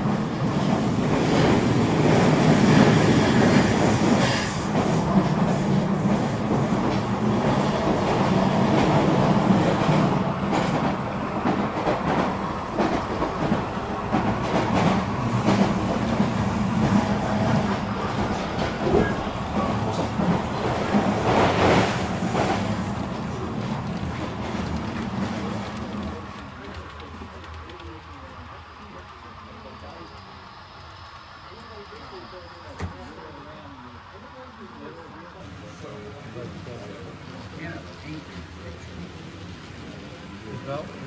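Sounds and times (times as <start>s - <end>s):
model train wheels clicking: 23.4s - 35.0s.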